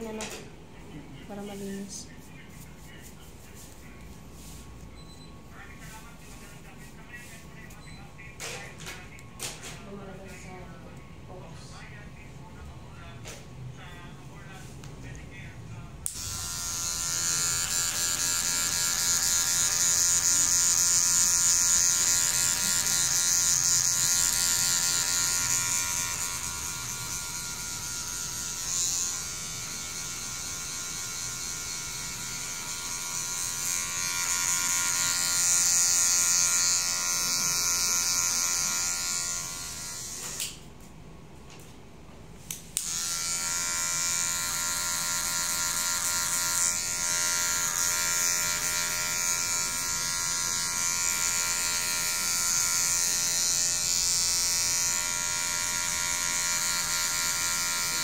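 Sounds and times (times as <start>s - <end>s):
hair clipper switch click: 16.0s - 16.3s, 42.5s - 43.0s
electric hair clippers buzzing: 16.0s - 40.7s, 42.4s - 58.0s.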